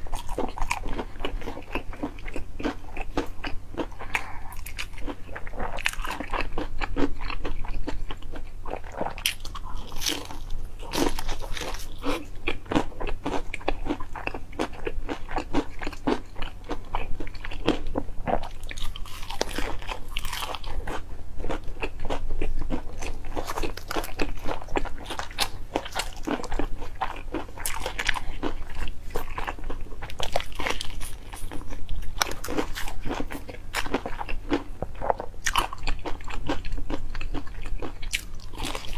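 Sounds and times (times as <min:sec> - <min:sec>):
steady low hum: 0:00.0 - 0:38.9
crunching crispy fried chicken: 0:08.9 - 0:38.9.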